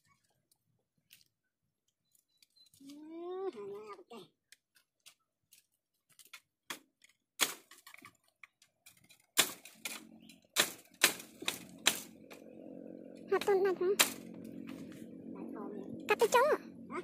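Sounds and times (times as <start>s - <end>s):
bamboo twigs snapping: 4.5s - 12.4s, 14.0s - 14.6s
low steady hum: 9.7s - 17.0s.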